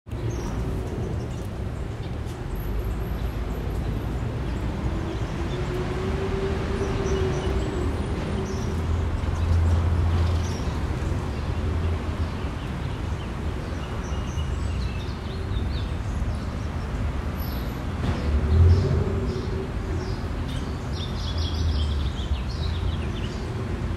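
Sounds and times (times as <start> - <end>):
traffic hum: 0.1 - 23.9.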